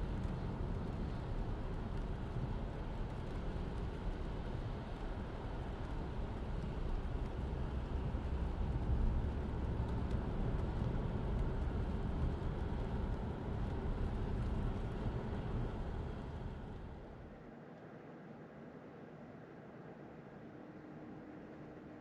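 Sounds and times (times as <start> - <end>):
road and tyre rumble in car: 0.0 - 17.6.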